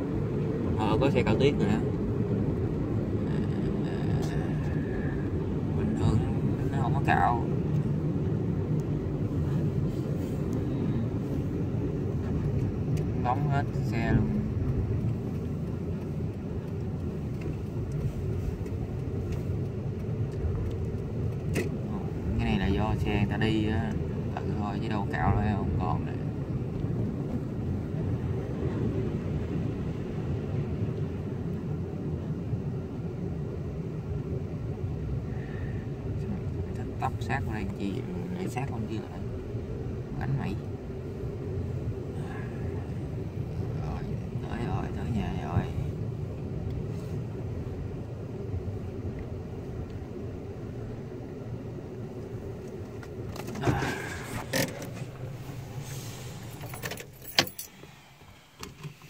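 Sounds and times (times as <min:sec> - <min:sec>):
car tyres and engine rumble: 0:00.0 - 0:59.0.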